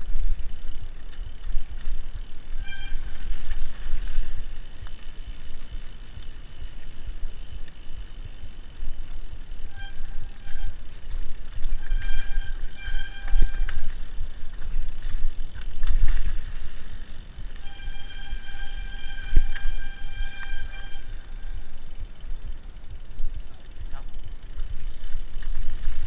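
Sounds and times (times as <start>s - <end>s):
wind and trail rumble: 0.0s - 26.0s
disc brakes squealing: 2.5s - 3.7s, 9.5s - 14.2s, 17.6s - 21.9s.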